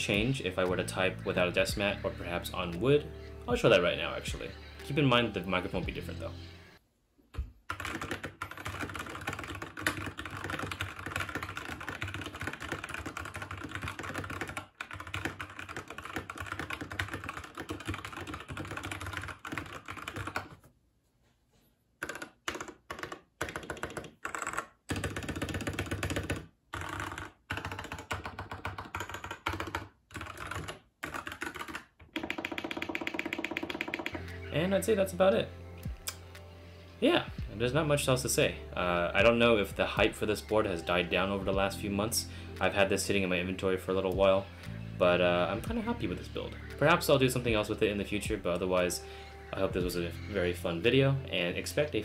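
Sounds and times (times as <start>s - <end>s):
mechanical keyboard typing: 7.7s - 20.6s, 22.0s - 34.2s.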